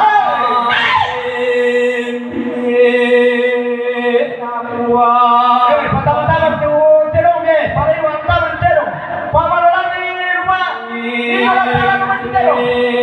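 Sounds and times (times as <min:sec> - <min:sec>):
voices chanting held notes: 0:08.4 - 0:13.0.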